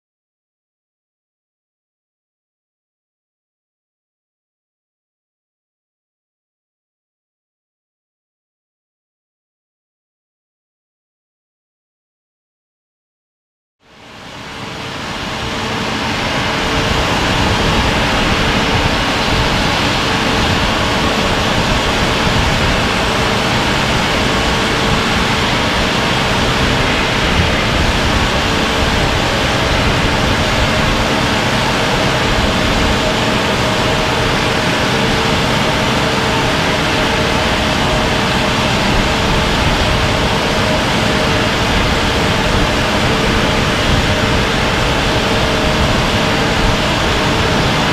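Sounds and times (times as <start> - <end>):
drilling machinery rumbling: 13.9 - 47.9
steady hum: 13.9 - 47.9
machinery hiss: 14.0 - 47.9.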